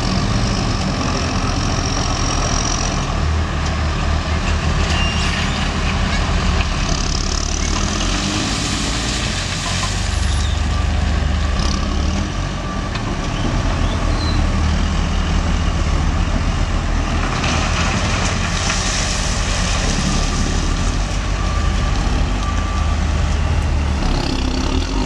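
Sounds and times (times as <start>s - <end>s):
diesel machinery engines rumbling: 0.0s - 25.0s.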